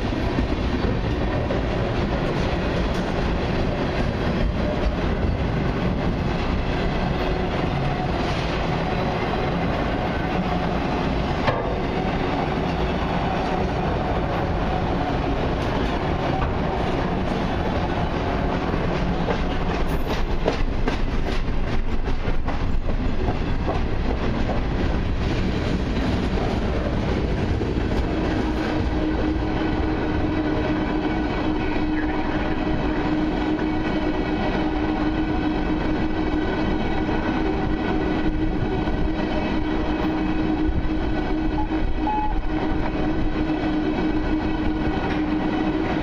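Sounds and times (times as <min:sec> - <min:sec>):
freight train rolling past: 0:00.0 - 0:46.0
wheels clicking over rail joints: 0:18.5 - 0:28.1.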